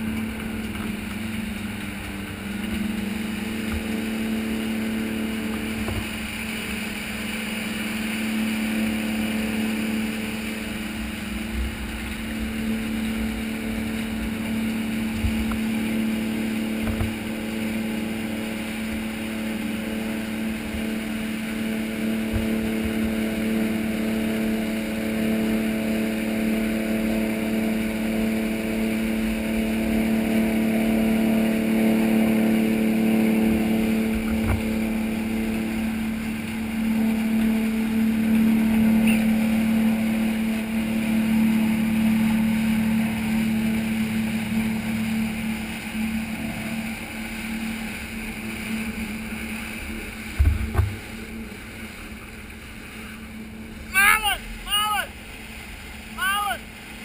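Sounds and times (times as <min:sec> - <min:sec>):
boat engines droning: 0:00.0 - 0:57.0
rush of churning wake: 0:00.0 - 0:57.0
low bumps: 0:11.0 - 0:16.0, 0:19.9 - 0:24.6, 0:32.6 - 0:39.7, 0:41.5 - 0:53.9.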